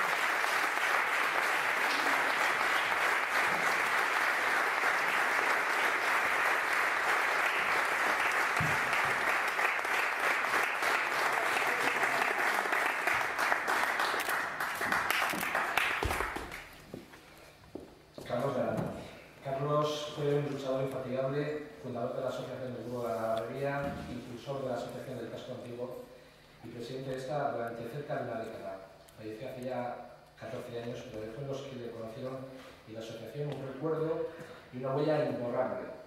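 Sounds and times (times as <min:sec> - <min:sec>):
audience applauding: 0:00.0 - 0:16.8.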